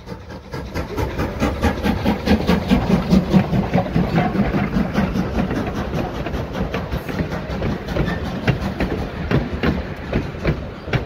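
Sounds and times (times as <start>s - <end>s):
freight train rumbling past: 0.0s - 11.0s
wheels clacking over rail joints: 0.0s - 11.0s.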